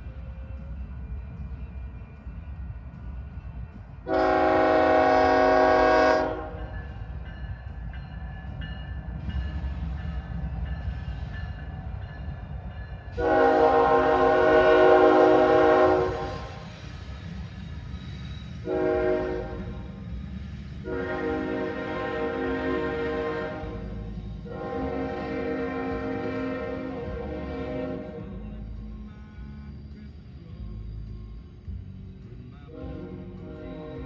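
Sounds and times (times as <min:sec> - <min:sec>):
freight train rumbling past: 0:00.0 - 0:34.0
locomotive air horn blasts: 0:04.1 - 0:06.7, 0:13.2 - 0:16.6, 0:18.6 - 0:19.8, 0:20.8 - 0:28.3, 0:32.7 - 0:34.0.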